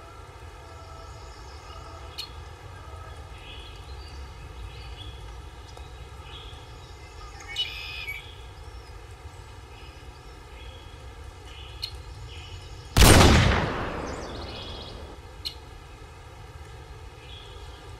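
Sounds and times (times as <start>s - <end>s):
wind: 0.0s - 17.9s
faint bird chirps: 5.8s - 9.0s, 13.9s - 15.6s
loud gunshot blast: 13.0s - 15.2s.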